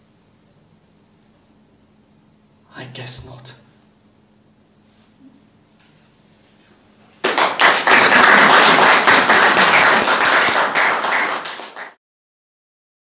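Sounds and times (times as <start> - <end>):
faint low hum: 0.0 - 11.6
audience applause: 7.2 - 12.0.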